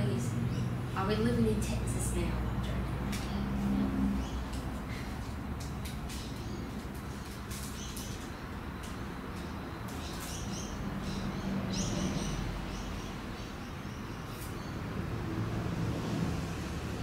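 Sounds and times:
cards clicking and rustling: 4.5s - 10.4s.

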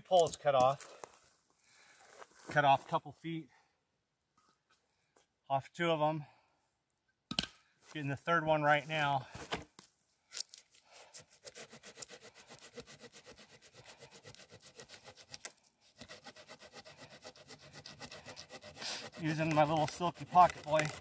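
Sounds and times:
hand saw cutting wood: 11.0s - 21.0s.

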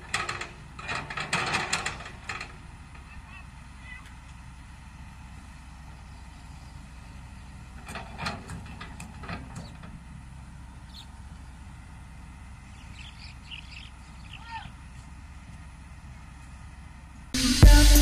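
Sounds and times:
sharp clanks and knocks: 0.0s - 3.2s, 7.8s - 10.1s
diesel engine idling: 0.0s - 18.0s.

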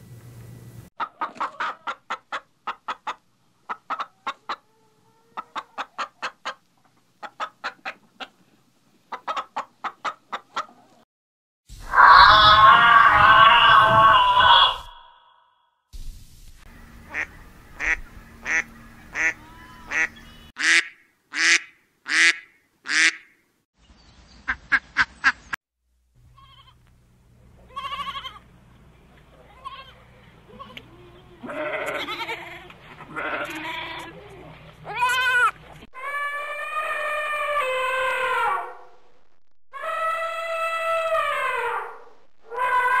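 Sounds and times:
goat bleating: 19.2s - 20.1s, 26.3s - 26.8s, 27.6s - 28.5s, 29.4s - 37.1s.

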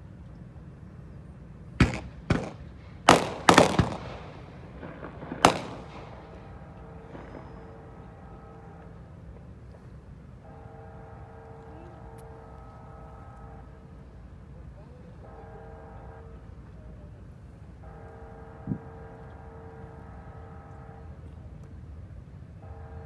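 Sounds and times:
sharp echoing bangs: 1.8s - 8.6s
faint horn-like tone: 6.5s - 21.7s, 22.6s - 23.0s.

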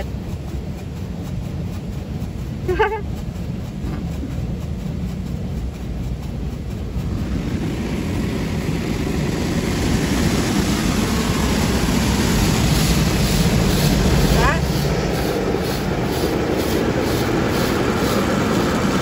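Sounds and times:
car wash water spray and machinery: 0.0s - 19.0s.

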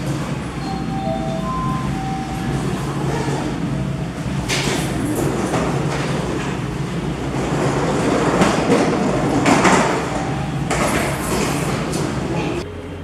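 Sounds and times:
sharp knocks and clatters: 7.4s - 12.1s.

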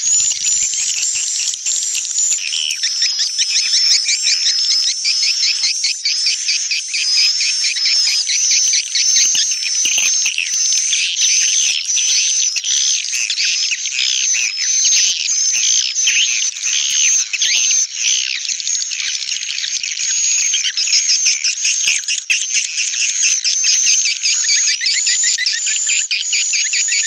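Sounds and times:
high twittering swiftlet chirps: 0.0s - 24.4s.

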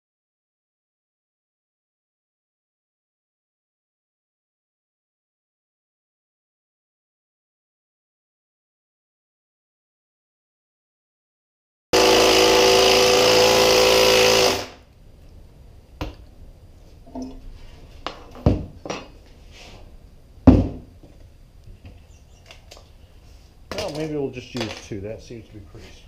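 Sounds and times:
cordless driver running: 12.0s - 14.8s.

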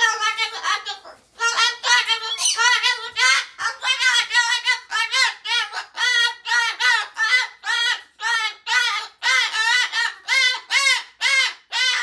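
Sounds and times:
cockatoo screaming squawks: 1.8s - 3.4s.

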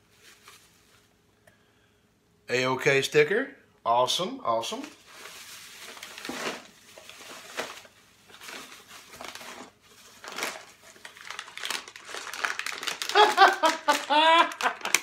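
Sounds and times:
bubble wrap crinkling: 4.8s - 15.0s.

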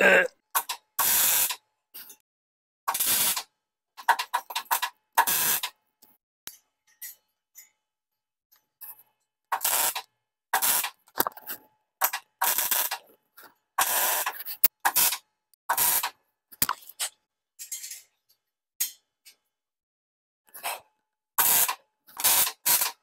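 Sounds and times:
welding arc bursts: 0.6s - 1.6s, 2.9s - 3.5s, 5.2s - 5.7s, 9.6s - 11.0s, 12.4s - 13.0s, 13.8s - 16.2s, 21.4s - 23.0s.

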